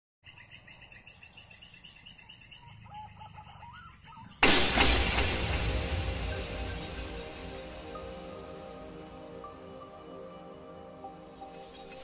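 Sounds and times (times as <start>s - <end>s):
birds calling: 0.2s - 8.0s
loud ringing crash: 4.4s - 9.1s
music: 4.4s - 12.0s.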